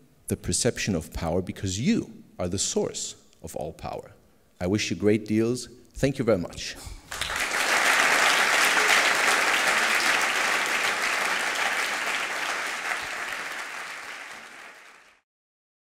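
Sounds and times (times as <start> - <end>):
audience applauding: 7.1 - 15.2.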